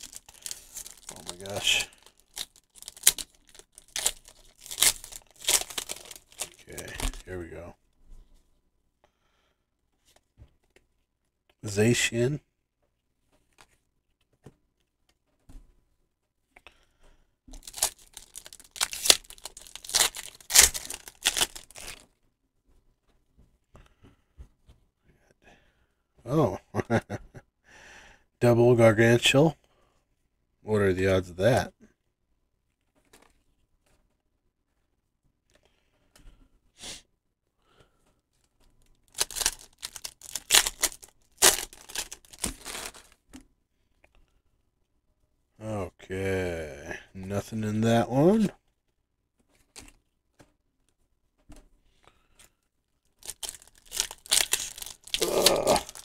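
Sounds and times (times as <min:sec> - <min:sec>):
foil wrapper ripping and crinkling: 0:00.0 - 0:07.3, 0:17.6 - 0:22.0, 0:39.0 - 0:43.2, 0:53.1 - 0:56.0.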